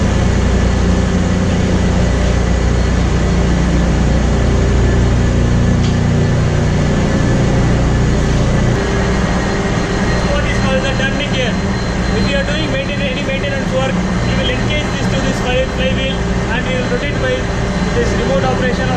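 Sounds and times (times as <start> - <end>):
marine diesel engine drone: 0.0 - 18.9.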